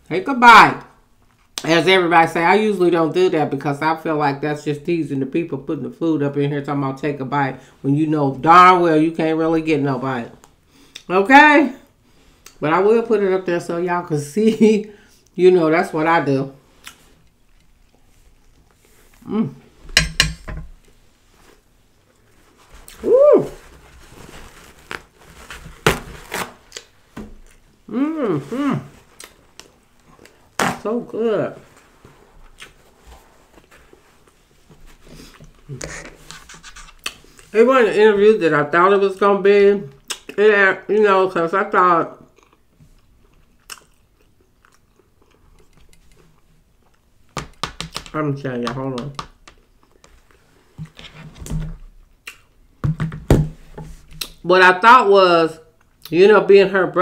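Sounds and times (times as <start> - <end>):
paper towel rustle: 20.9 - 27.4, 28.3 - 36.6
woman humming mmm: 23.0 - 23.6, 27.9 - 29.0
chewing food: 42.3 - 47.1.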